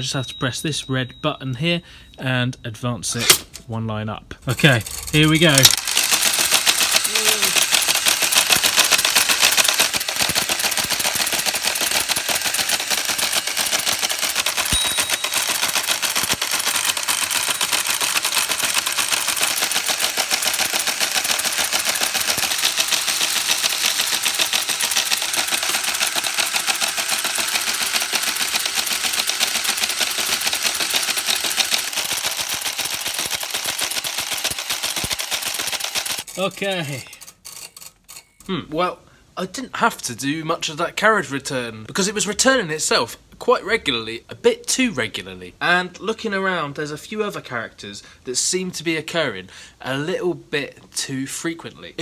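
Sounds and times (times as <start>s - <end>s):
teleprinter clattering: 4.6s - 37.4s
short high ping: 14.7s - 15.5s.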